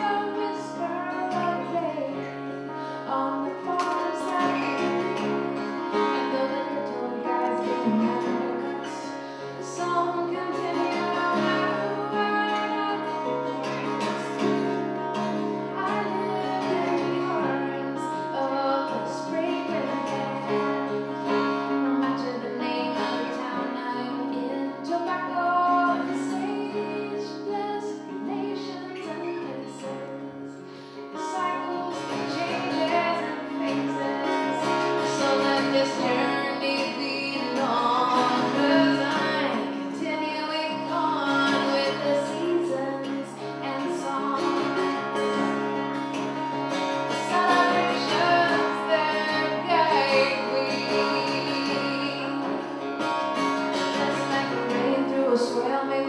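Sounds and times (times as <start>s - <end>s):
acoustic guitars: 0.0s - 56.0s
woman singing: 0.0s - 56.0s.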